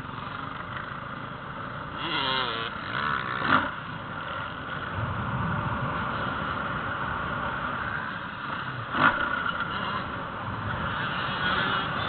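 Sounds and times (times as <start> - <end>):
wind on microphone: 4.9 - 7.0.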